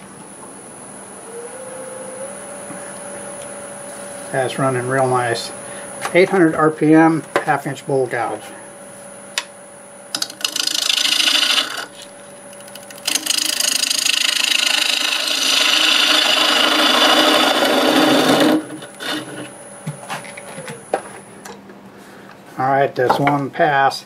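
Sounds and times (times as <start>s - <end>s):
wood lathe humming: 10.1s - 19.7s
gouge scraping spinning wood: 10.1s - 20.6s.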